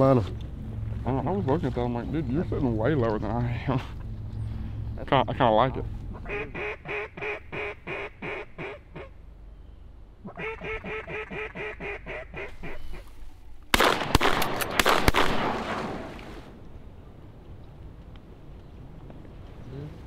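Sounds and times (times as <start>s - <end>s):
duck call quacks: 6.1s - 9.2s, 10.2s - 13.1s
shotgun shots: 13.7s - 16.1s.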